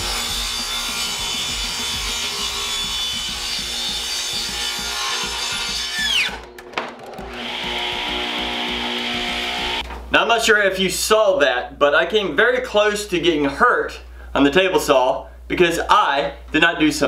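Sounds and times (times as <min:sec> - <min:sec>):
table saw cutting plywood: 0:00.0 - 0:09.8
guitar music: 0:06.5 - 0:09.8.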